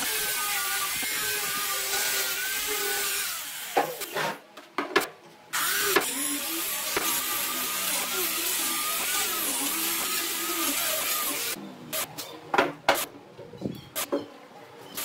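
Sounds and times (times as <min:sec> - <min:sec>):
angle grinder sanding wood: 0:00.0 - 0:04.1, 0:05.6 - 0:11.6.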